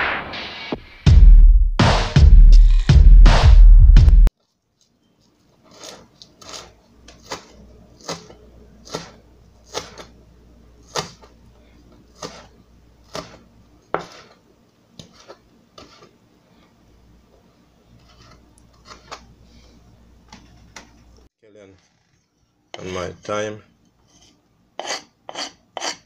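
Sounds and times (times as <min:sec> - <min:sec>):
knife chopping on cutting board: 0:05.7 - 0:10.1, 0:10.8 - 0:11.3, 0:12.1 - 0:14.4.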